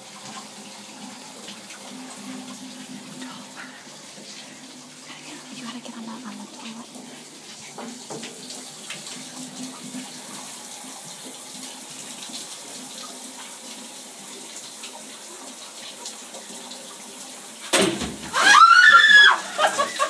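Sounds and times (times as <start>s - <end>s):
shower running: 0.0s - 20.0s
person shrieking: 18.3s - 20.0s.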